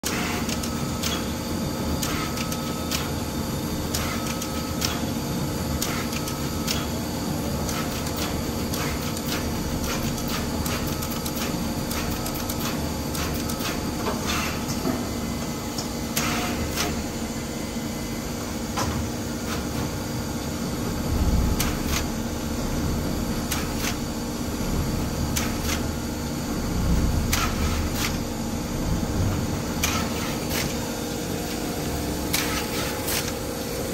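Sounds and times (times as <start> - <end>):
machine mechanical hum: 0.0 - 33.9
sharp mechanical clicks: 27.3 - 28.2.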